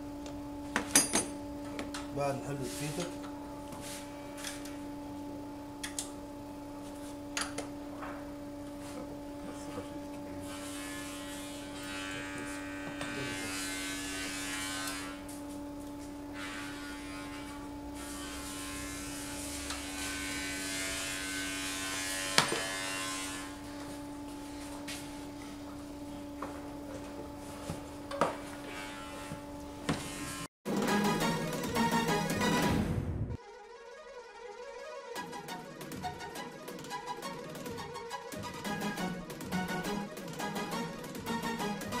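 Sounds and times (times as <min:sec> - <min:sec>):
steady electrical hum: 0:00.0 - 0:30.5
buzzing whir: 0:03.1 - 0:30.5.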